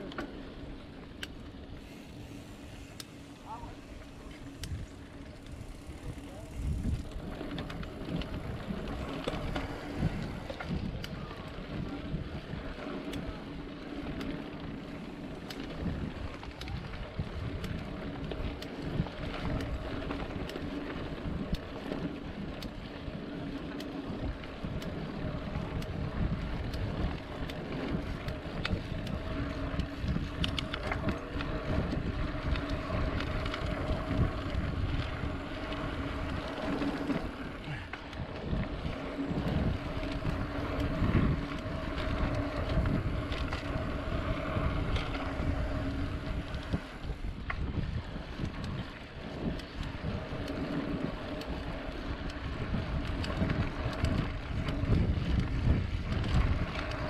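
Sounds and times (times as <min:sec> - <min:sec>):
bike rattling over bumps: 0:00.0 - 0:57.0
wind on microphone: 0:01.8 - 0:13.3, 0:24.1 - 0:57.0.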